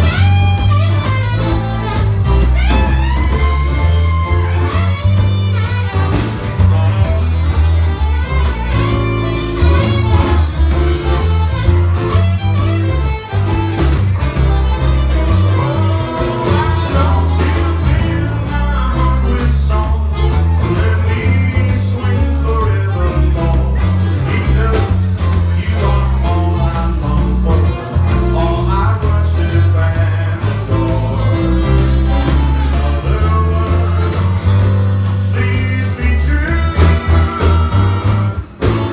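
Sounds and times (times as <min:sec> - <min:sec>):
acoustic guitar: 0:00.0 - 0:38.9
drums: 0:00.0 - 0:38.9
electric bass: 0:00.0 - 0:38.9
man singing: 0:15.3 - 0:38.9.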